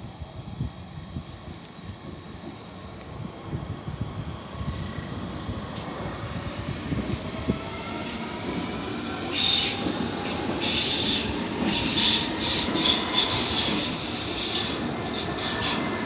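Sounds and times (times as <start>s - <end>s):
train wheels rumbling on rail: 0.0s - 16.0s
high-pitched wheel squeal: 10.6s - 15.9s.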